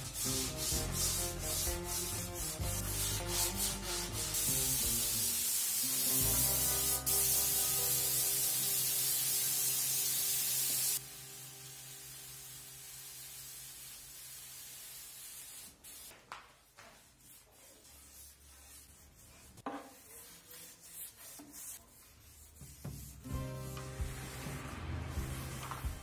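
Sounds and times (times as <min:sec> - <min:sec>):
background music: 0:00.0 - 0:09.6, 0:23.0 - 0:26.0
spray gun hissing: 0:02.8 - 0:16.1.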